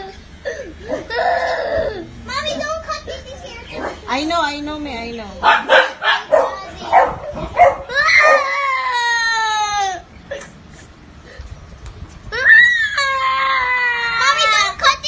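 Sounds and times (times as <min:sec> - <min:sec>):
young child crying: 0:00.0 - 0:02.1, 0:07.8 - 0:10.5, 0:12.3 - 0:14.7.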